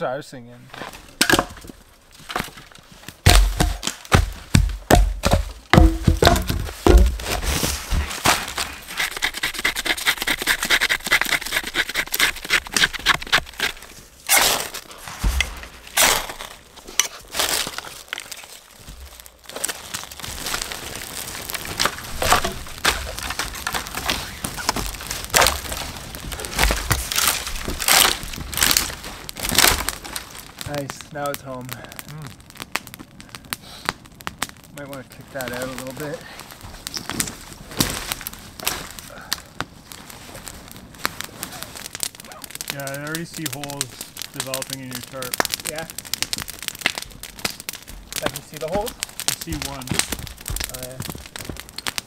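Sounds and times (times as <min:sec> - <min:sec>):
wood fire crackling: 0:00.0 - 0:52.0
axe splitting wood: 0:01.2 - 0:01.7, 0:03.2 - 0:07.5, 0:08.2 - 0:18.3, 0:21.5 - 0:25.7.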